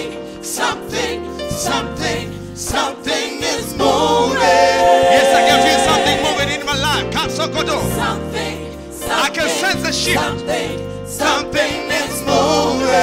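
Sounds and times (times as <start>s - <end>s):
gospel singers with band: 0.0s - 13.0s
keyboard: 0.0s - 13.0s
bass guitar: 3.8s - 8.6s.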